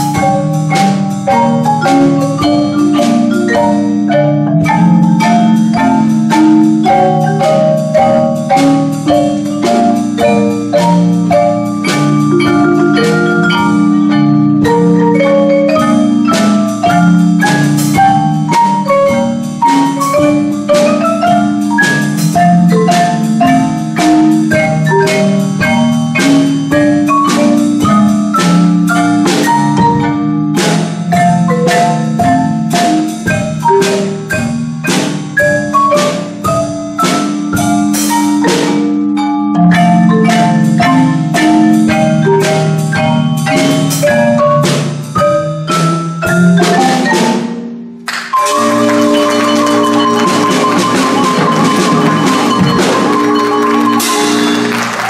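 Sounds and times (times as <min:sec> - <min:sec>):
marimba and vibraphone music: 0:00.0 - 0:55.0.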